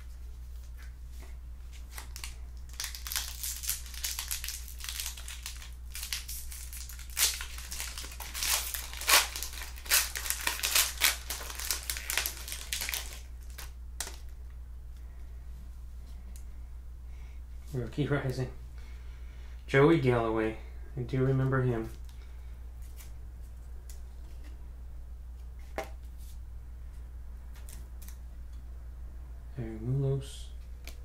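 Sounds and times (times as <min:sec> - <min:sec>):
wrapper crinkling and tearing: 0:01.8 - 0:14.4.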